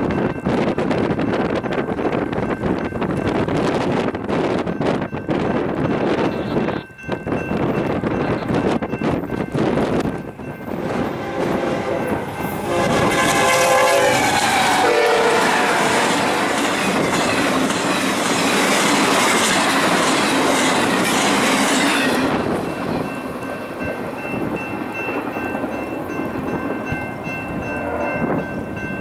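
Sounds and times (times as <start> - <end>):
train wheels clattering on rails: 0.0 - 29.0
train horn blowing: 10.7 - 16.5, 27.6 - 28.4.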